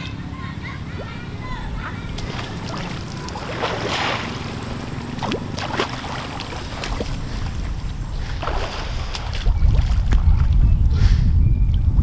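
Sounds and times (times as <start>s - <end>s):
water sloshing and splashing: 0.8s - 10.6s
wind on microphone: 6.2s - 12.0s.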